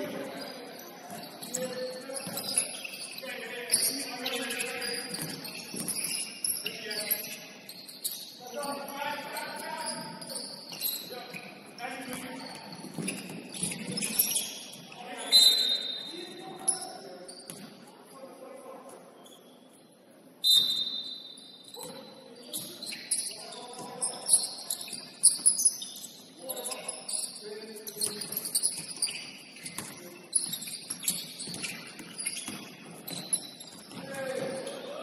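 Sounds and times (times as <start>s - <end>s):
players' voices: 0.0s - 7.6s, 8.4s - 19.2s, 21.8s - 25.1s, 32.9s - 35.0s
shoes squeaking on hardwood floor: 0.0s - 17.9s, 20.4s - 35.0s
ball bouncing: 12.1s - 14.4s.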